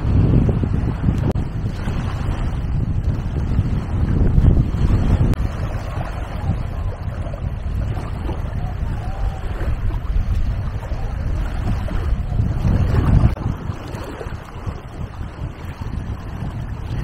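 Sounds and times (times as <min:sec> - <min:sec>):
wind rumbling on microphone: 0:00.0 - 0:17.0
small waves lapping on sand: 0:04.7 - 0:17.0.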